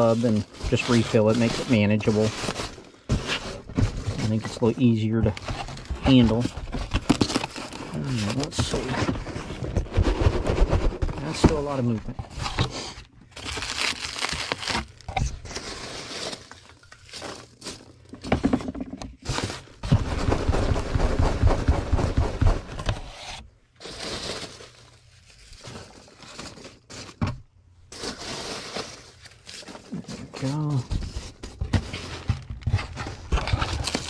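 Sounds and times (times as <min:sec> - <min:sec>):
packing peanuts rustling in a box: 0:00.0 - 0:18.3, 0:23.8 - 0:27.2, 0:27.9 - 0:32.3, 0:33.0 - 0:34.0.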